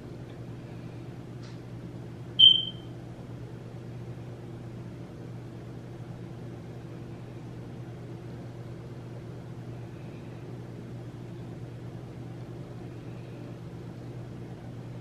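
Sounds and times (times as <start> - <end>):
low electrical hum: 0.0 - 15.0
short bright ding: 2.4 - 2.8.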